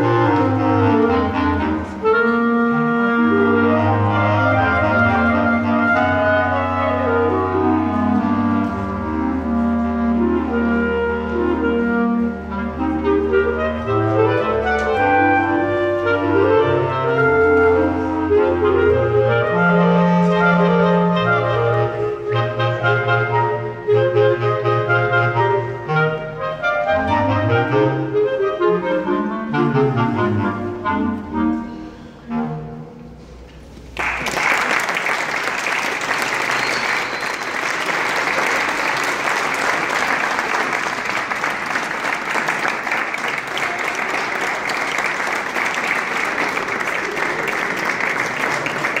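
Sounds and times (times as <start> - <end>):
clarinet quartet playing: 0.0 - 33.5
applause: 33.9 - 49.0.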